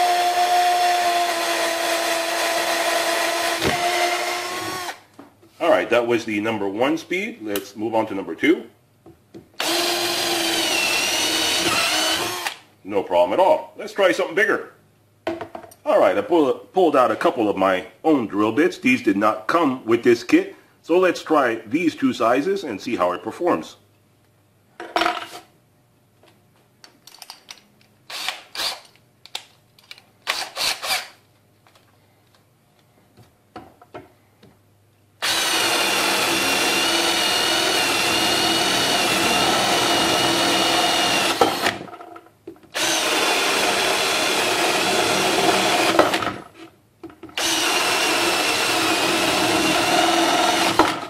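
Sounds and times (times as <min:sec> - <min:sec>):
drill whining: 0:00.0 - 0:05.0, 0:09.6 - 0:12.6, 0:28.1 - 0:28.9, 0:30.3 - 0:31.2, 0:35.2 - 0:41.8, 0:42.8 - 0:46.3, 0:47.4 - 0:51.0.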